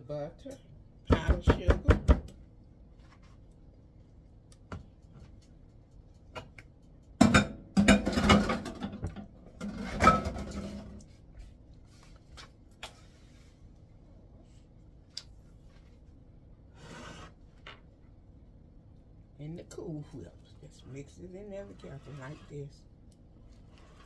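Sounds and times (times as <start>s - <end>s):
spatula scraping glass bowl: 21.7s - 22.7s.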